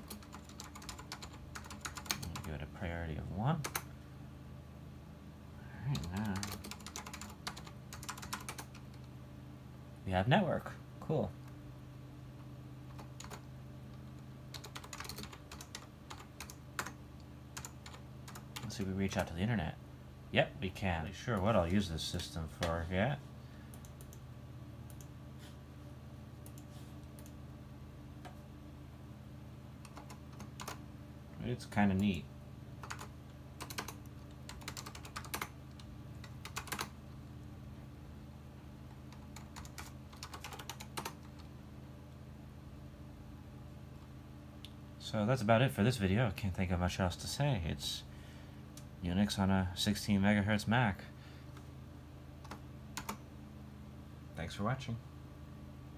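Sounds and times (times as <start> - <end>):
computer keyboard typing: 0.0 - 2.6, 3.6 - 3.9, 5.9 - 9.1, 12.9 - 17.0, 17.6 - 19.3, 29.8 - 30.8, 32.8 - 37.0, 39.0 - 41.5, 52.4 - 53.2.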